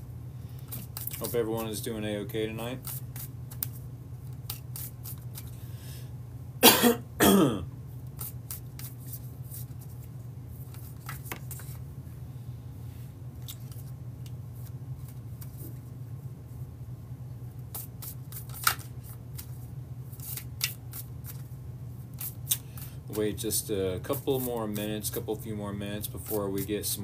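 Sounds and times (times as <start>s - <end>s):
steady low hum: 0.0s - 27.0s
cards being shuffled: 0.6s - 1.8s, 2.6s - 5.6s, 8.1s - 11.8s, 13.4s - 16.0s, 17.7s - 21.5s, 22.1s - 23.4s, 24.1s - 25.2s, 26.2s - 26.8s
man coughing: 6.6s - 7.7s.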